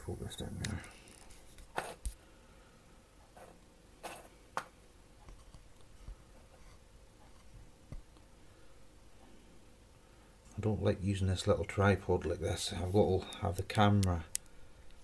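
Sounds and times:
light clicks and taps: 0:13.2 - 0:15.0.

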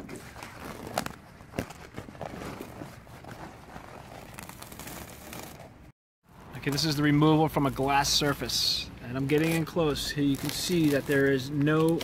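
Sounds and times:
coating peeling rustling and crackling: 0:00.0 - 0:05.9, 0:09.2 - 0:12.0.

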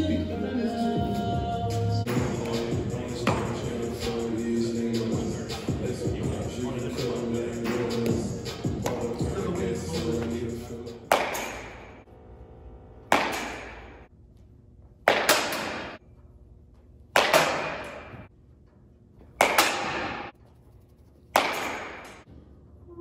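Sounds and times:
bat hitting ball: 0:11.0 - 0:12.0, 0:13.0 - 0:14.1, 0:15.0 - 0:16.0, 0:17.1 - 0:18.2, 0:19.2 - 0:20.3, 0:21.3 - 0:22.2.

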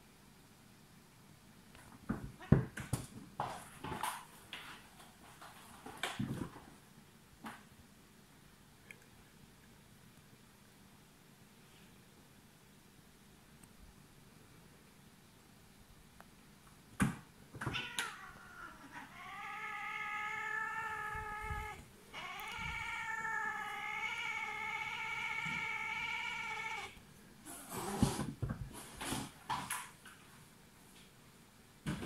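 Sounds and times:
cats scuffling and knocking: 0:01.8 - 0:06.8, 0:27.7 - 0:30.0
cat yowling: 0:17.6 - 0:27.0.

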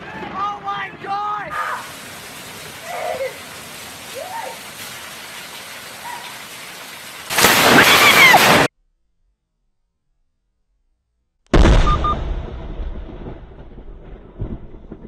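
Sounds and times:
heavy rain on a lawn: 0:01.5 - 0:08.7
water pouring from a roof spout: 0:01.6 - 0:08.7
loud lightning crack: 0:07.2 - 0:08.7, 0:11.5 - 0:15.0.

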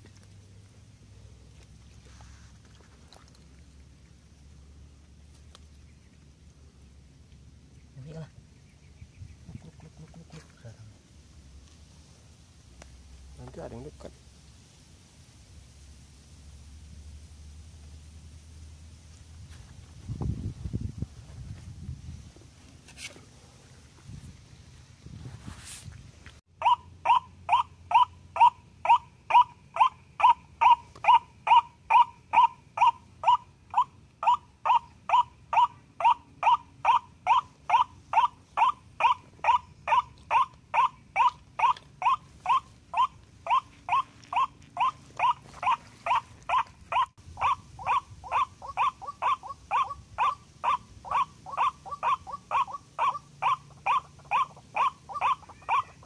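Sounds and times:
waterhen calling kwak: 0:26.6 - 0:56.0.

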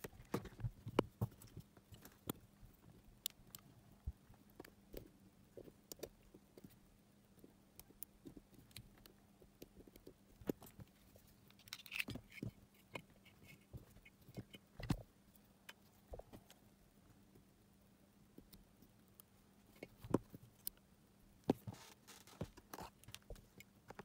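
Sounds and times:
clicks and scrapes of plastic and metal: 0:07.8 - 0:15.1, 0:21.5 - 0:24.0.

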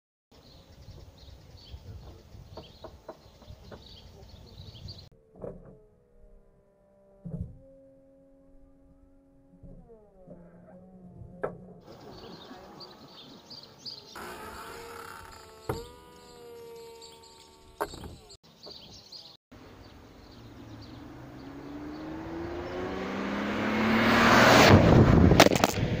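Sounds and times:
car engine accelerating past: 0:20.3 - 0:25.5.

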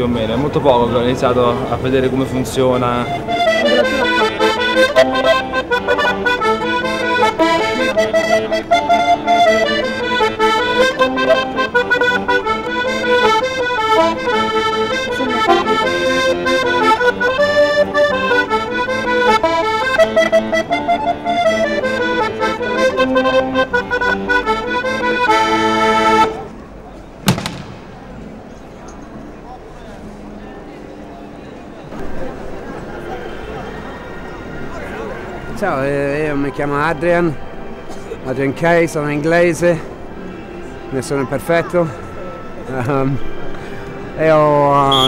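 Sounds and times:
button accordion melody: 0:02.7 - 0:26.5.

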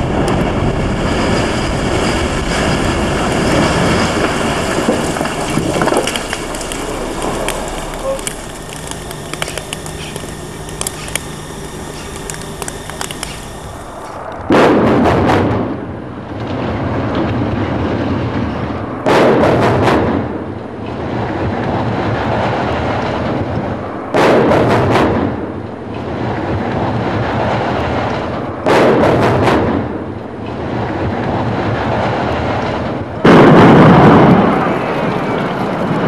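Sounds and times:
explosive charges cracking: 0:00.0 - 0:18.4
demolition rumbling: 0:00.0 - 0:36.0.

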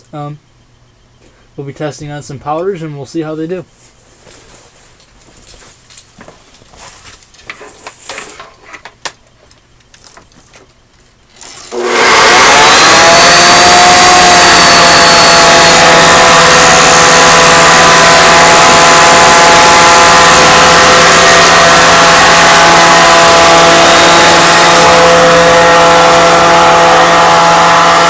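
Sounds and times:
vacuum cleaner motor whining: 0:11.3 - 0:28.0.

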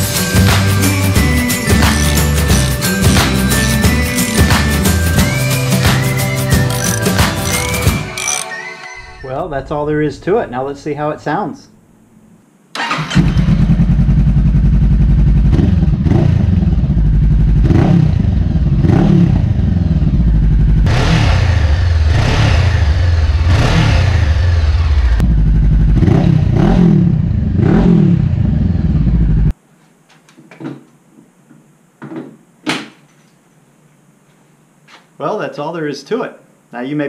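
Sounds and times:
motorcycle engine revving: 0:01.6 - 0:08.4, 0:12.8 - 0:29.5.

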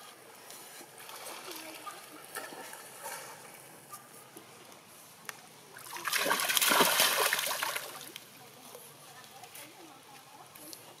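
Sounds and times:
water sloshing and lapping: 0:00.4 - 0:04.6, 0:05.7 - 0:08.4
splashing water: 0:05.8 - 0:08.3.

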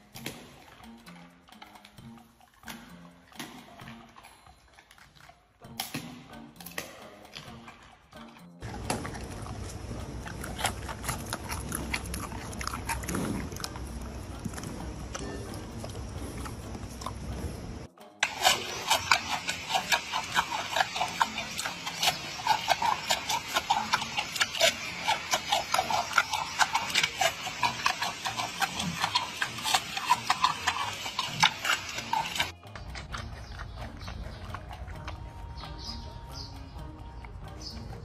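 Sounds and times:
panda crunching bamboo: 0:08.6 - 0:17.5, 0:18.2 - 0:35.0.

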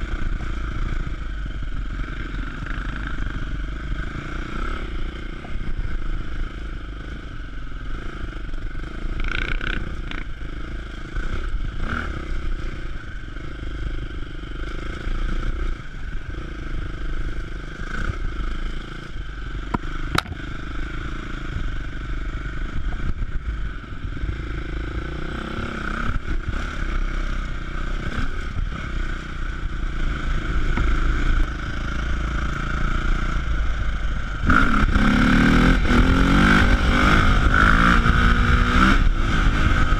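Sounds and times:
motorcycle engine revving: 0:00.0 - 0:39.9
clatter and knocks over rough trail: 0:19.7 - 0:20.5.

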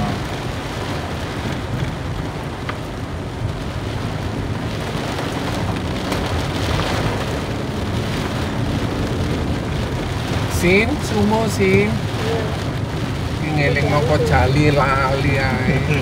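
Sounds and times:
car rumbling on wet road: 0:00.0 - 0:16.0
heavy rain on a car: 0:00.0 - 0:16.0.

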